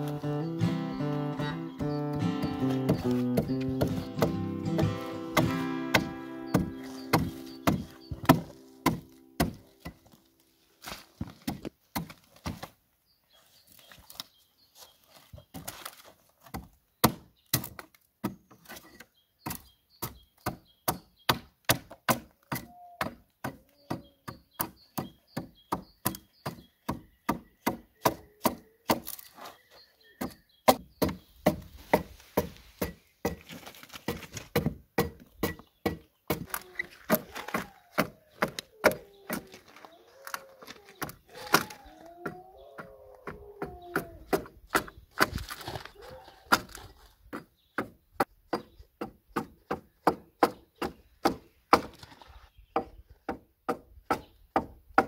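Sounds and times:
axe chopping wood: 0:01.8 - 0:10.1, 0:10.9 - 0:12.7, 0:16.4 - 0:18.4, 0:19.4 - 0:29.2, 0:30.2 - 0:39.6, 0:43.2 - 0:45.8, 0:46.5 - 0:52.0, 0:52.8 - 0:55.0.

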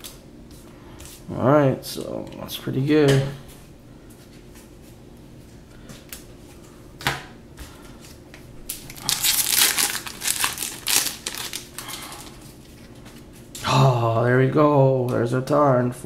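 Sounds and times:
foil wrapper tearing and crinkling: 0:08.7 - 0:12.6.

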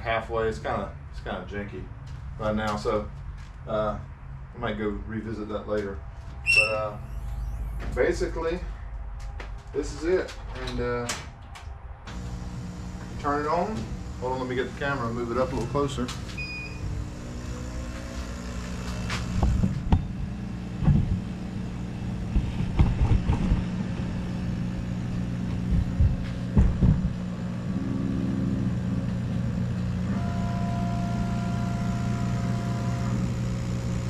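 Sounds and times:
motor whine: 0:06.4 - 0:08.0, 0:12.1 - 0:34.0
laser cutter humming: 0:12.1 - 0:34.0.

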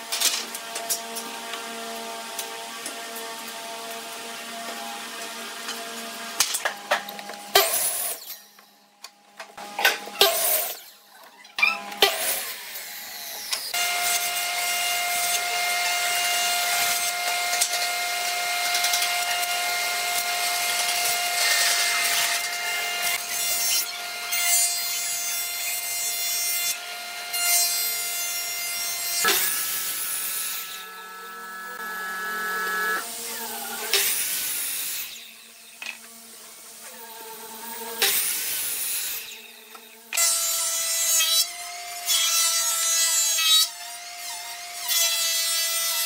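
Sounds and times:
wood being cut: 0:11.8 - 0:46.0
power saw motor whine: 0:27.7 - 0:36.0.

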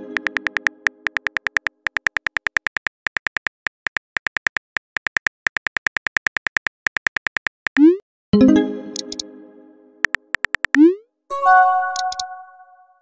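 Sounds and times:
phone keyboard typing clicks: 0:00.2 - 0:07.8, 0:10.0 - 0:10.9, 0:11.9 - 0:12.3.

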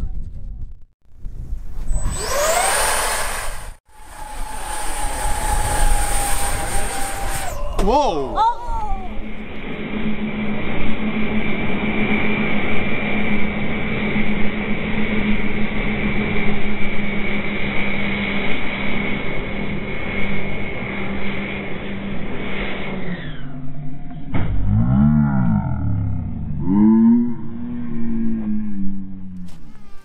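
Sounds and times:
electric ducted fans whining: 0:01.8 - 0:24.4.

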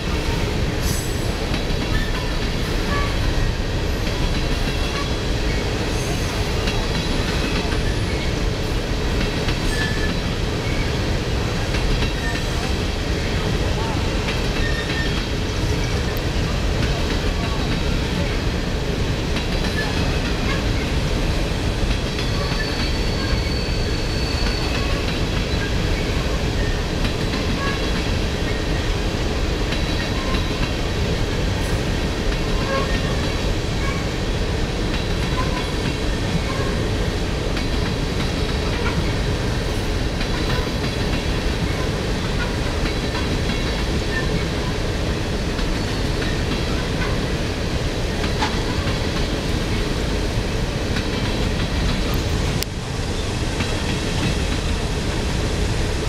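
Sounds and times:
train wheels on rails: 0:00.0 - 0:56.0
faint high squeal: 0:22.2 - 0:24.9.

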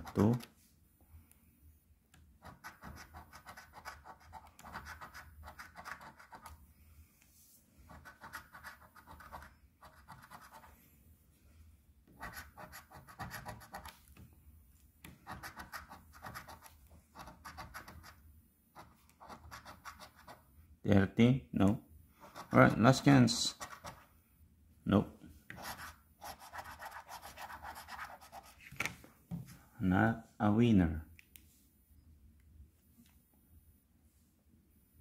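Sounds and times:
coin scraping scratch card: 0:02.4 - 0:06.6, 0:07.9 - 0:10.7, 0:12.2 - 0:13.9, 0:15.2 - 0:18.2, 0:18.8 - 0:20.4, 0:25.6 - 0:28.6.

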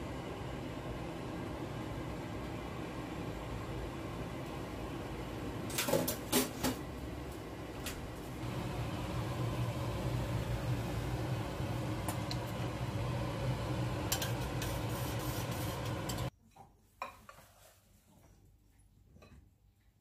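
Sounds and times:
kitchen hum: 0:00.0 - 0:19.7.

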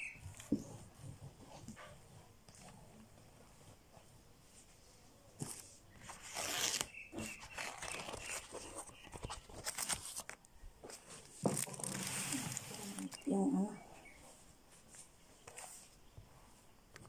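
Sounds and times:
wrapping material rustling: 0:06.0 - 0:13.6.

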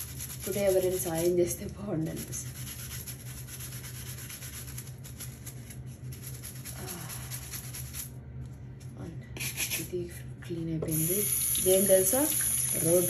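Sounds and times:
brush scrubbing plastic toy: 0:00.0 - 0:08.1
steady low hum: 0:00.0 - 0:13.0.

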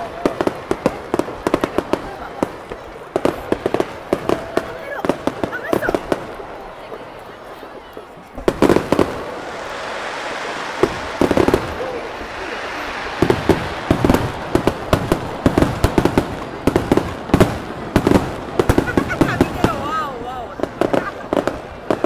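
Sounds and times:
firework crackling: 0:00.0 - 0:22.0
firework shells bursting: 0:08.4 - 0:18.9.

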